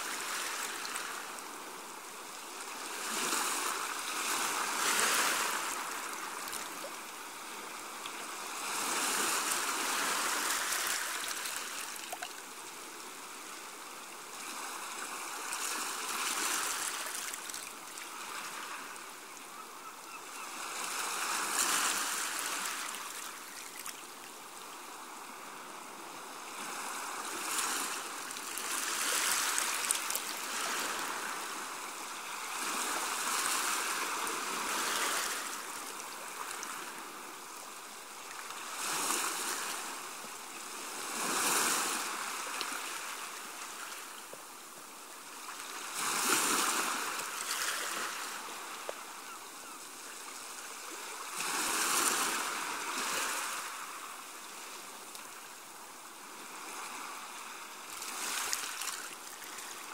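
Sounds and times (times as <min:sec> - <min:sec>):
small waves washing onto a beach: 0:00.0 - 0:59.9.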